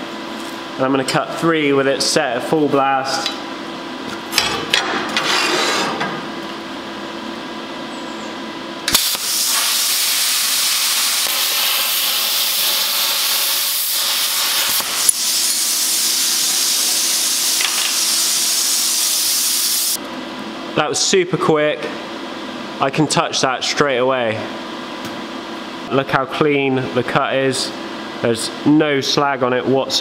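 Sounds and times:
plasma cutter hissing: 8.9s - 20.0s.

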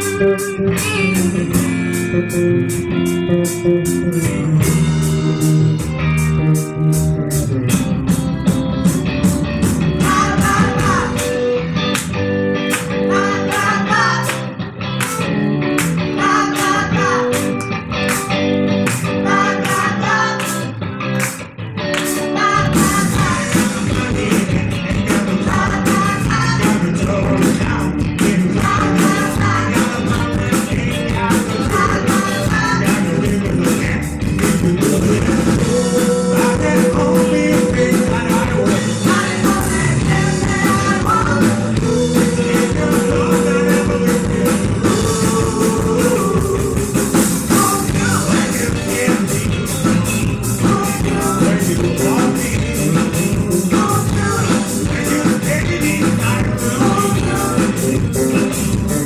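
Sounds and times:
person singing: 0.0s - 1.7s, 9.9s - 11.6s, 22.0s - 59.0s
live rock band playing: 0.0s - 59.0s.

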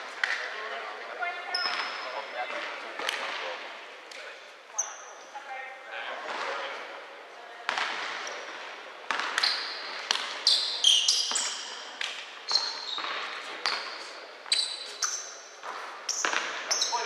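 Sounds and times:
sneakers squeaking on floor: 1.3s - 3.5s, 4.7s - 5.4s, 7.7s - 17.0s
basketball bouncing: 9.0s - 10.4s, 16.1s - 16.8s.

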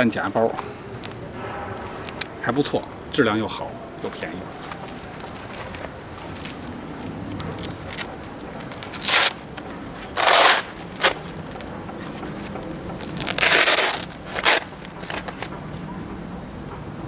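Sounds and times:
webbing rustling: 0.0s - 16.7s
velcro ripping apart: 7.5s - 11.3s, 13.0s - 15.5s.

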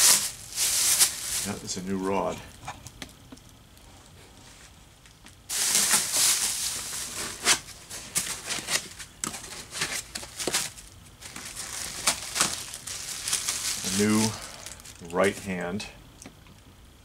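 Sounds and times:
packaging rustling and crinkling: 0.0s - 1.8s, 5.2s - 15.5s.

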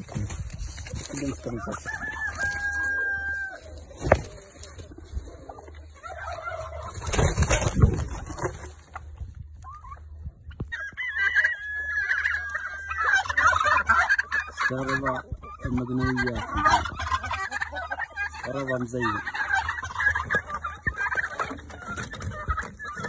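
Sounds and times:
rustling: 0.0s - 9.2s
hens clucking: 0.0s - 23.0s
rooster crowing: 1.5s - 3.8s.

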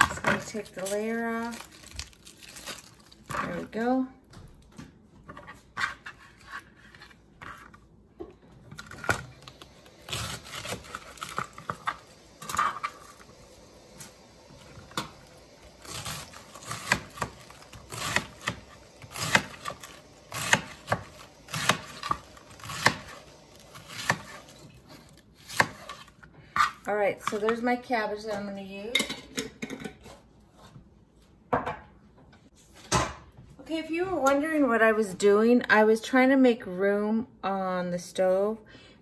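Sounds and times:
knife slicing cabbage on board: 10.0s - 13.0s, 15.8s - 27.4s.

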